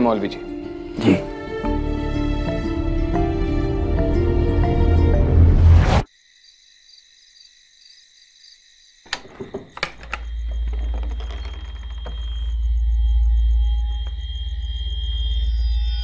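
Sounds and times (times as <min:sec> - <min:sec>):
soundtrack music: 0:01.0 - 0:06.0
crickets chirping: 0:06.1 - 0:16.0.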